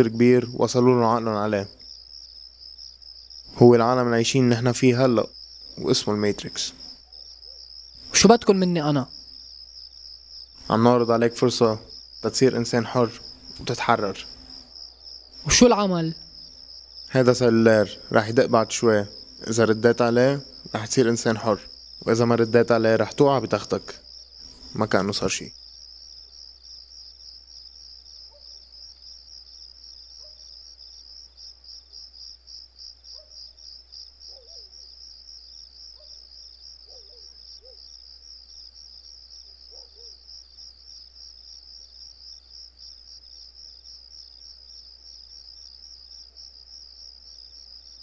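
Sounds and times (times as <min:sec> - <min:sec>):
crickets trilling: 0:00.0 - 0:48.0.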